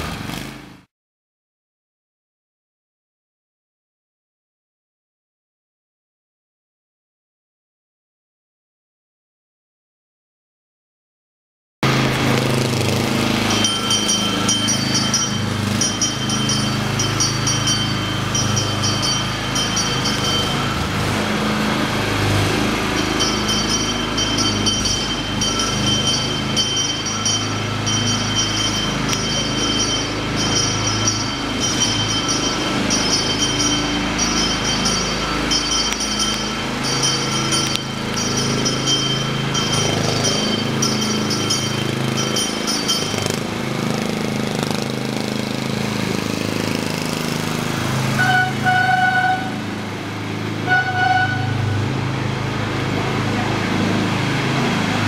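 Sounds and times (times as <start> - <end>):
high electronic chimes: 13.3 - 43.6.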